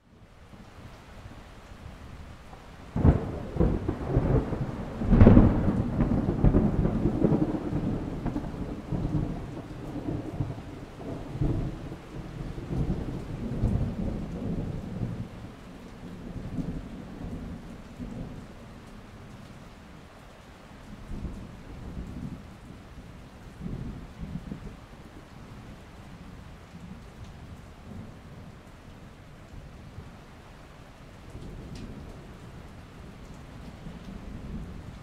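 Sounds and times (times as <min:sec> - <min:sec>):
rain hiss: 0:00.0 - 0:35.0
thunder crack and rumble: 0:02.9 - 0:15.4.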